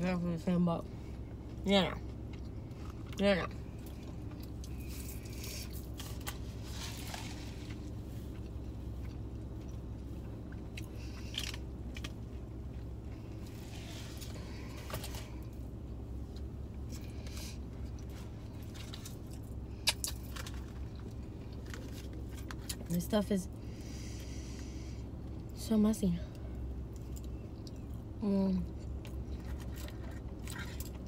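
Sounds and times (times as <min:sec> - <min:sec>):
low hum inside a car: 0:00.0 - 0:31.0
chewing and biting food: 0:28.8 - 0:31.0.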